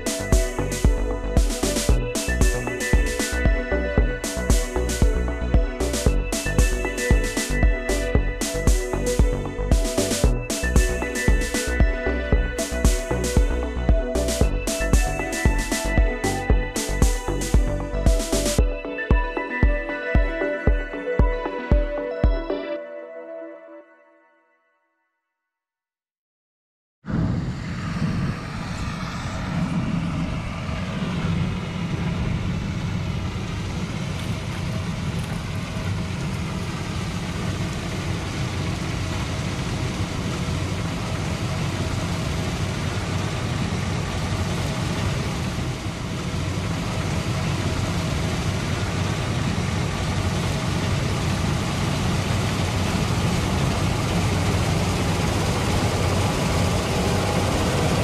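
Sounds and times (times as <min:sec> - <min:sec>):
combine harvester engine hum: 0:00.0 - 0:19.5, 0:27.1 - 0:58.0.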